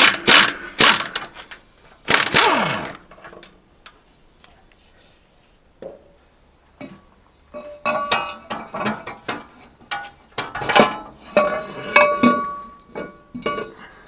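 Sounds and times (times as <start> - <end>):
metallic clanks and clinks: 7.6 - 13.8.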